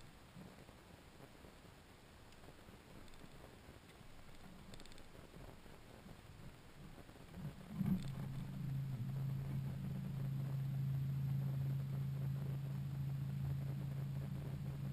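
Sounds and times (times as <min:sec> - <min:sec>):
electric motor humming: 0:07.7 - 0:14.9.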